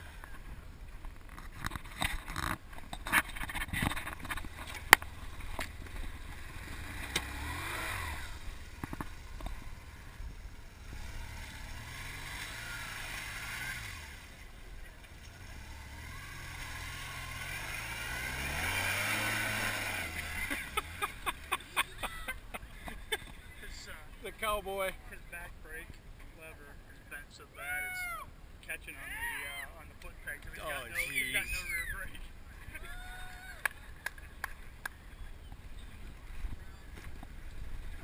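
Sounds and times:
motorcycle engine revving: 1.3 - 23.7
motorcycle knocks and clatter: 8.7 - 9.8.

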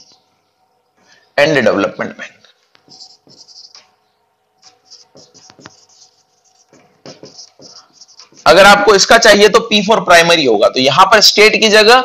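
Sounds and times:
marker pen squeaking on whiteboard: 2.5 - 4.0, 4.6 - 8.7.

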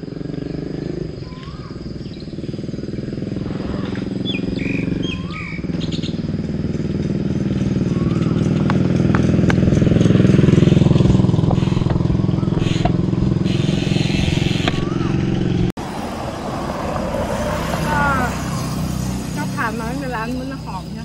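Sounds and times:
small motorcycle engine: 0.0 - 21.0
bird whistled call: 1.2 - 2.5, 3.6 - 6.2, 7.8 - 8.6, 11.6 - 15.2.

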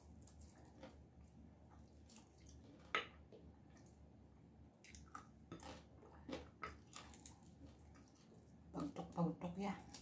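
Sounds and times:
chicken being torn and chewed: 0.0 - 1.0, 4.8 - 8.4.

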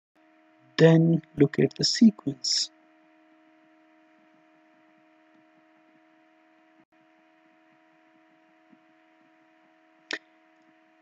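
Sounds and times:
faint electrical hum: 0.2 - 11.0.

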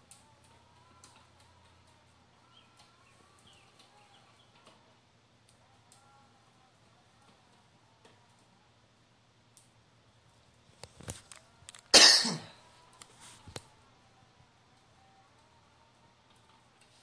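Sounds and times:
person coughing loudly: 11.9 - 12.6
small cough or throat-clearing: 11.9 - 12.6.

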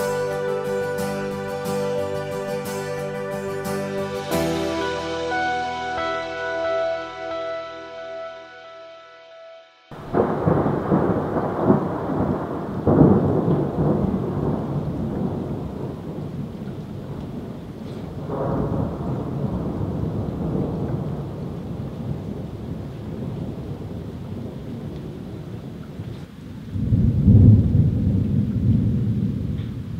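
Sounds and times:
heavy rain: 0.0 - 7.8, 9.9 - 29.9
short stretch of music: 0.0 - 9.9
thunder rumbling: 9.9 - 29.9.

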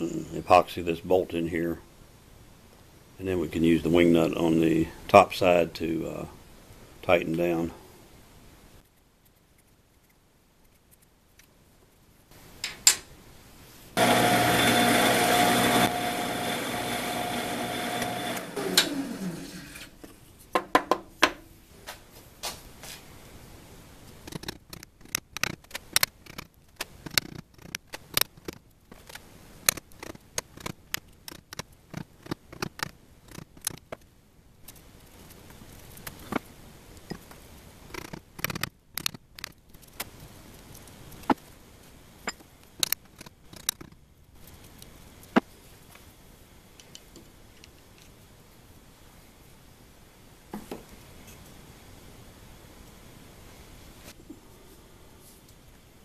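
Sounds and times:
drill press spinning: 14.0 - 19.9.

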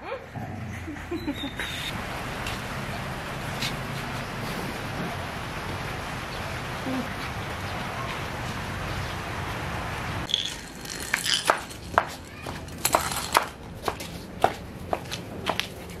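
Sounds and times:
dog paws clicking on tile: 10.3 - 16.0.

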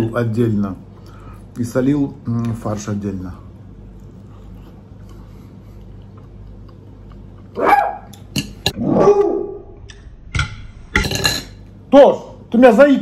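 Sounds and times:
dog barking loudly: 7.6 - 8.1.

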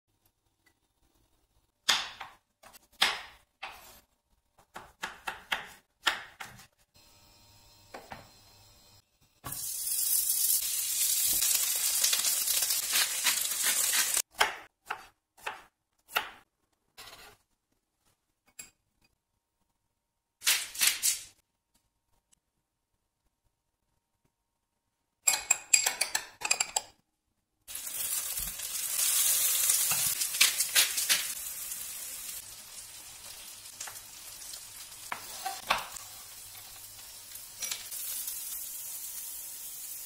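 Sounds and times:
slices sizzling in oil: 7.3 - 14.3, 27.7 - 40.0.

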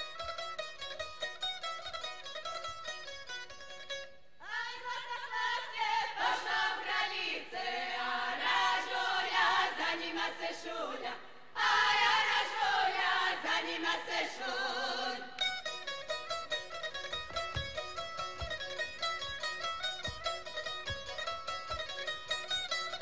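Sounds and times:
women singing unaccompanied: 4.4 - 15.4.

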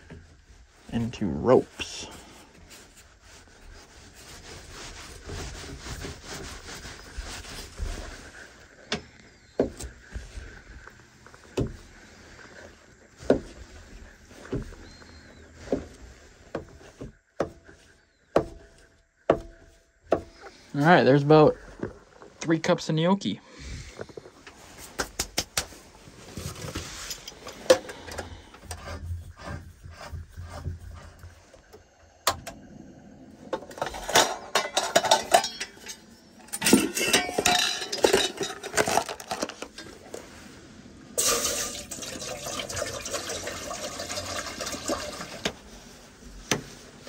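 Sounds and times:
metal pot and lid clattering: 33.6 - 39.5, 41.2 - 42.6
water pouring into pot: 41.2 - 45.5.

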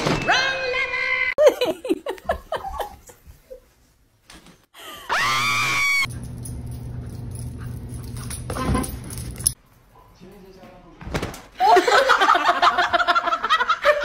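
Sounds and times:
shrill scream: 5.1 - 6.1.

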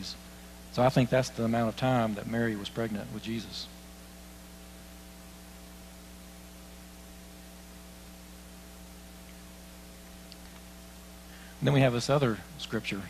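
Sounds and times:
electrical mains hum: 0.0 - 13.0
even hiss: 9.2 - 13.0.

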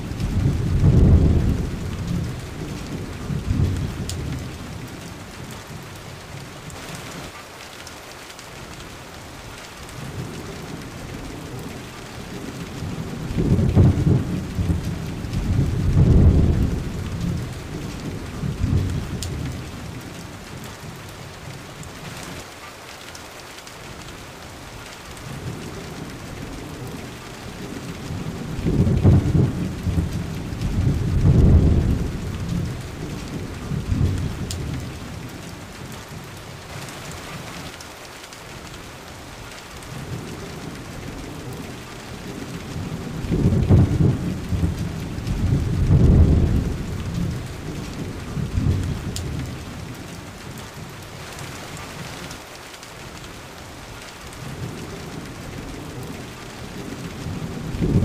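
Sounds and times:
low rolling thunder: 0.0 - 5.9, 9.9 - 21.0, 25.2 - 37.6, 39.9 - 50.9, 54.4 - 58.0
steady rain falling: 0.0 - 58.0.

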